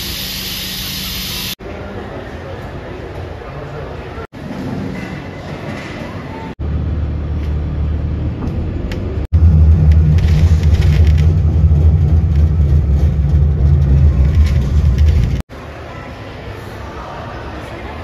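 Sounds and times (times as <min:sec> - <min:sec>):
vehicle rumble from inside cabin: 0:07.9 - 0:15.5.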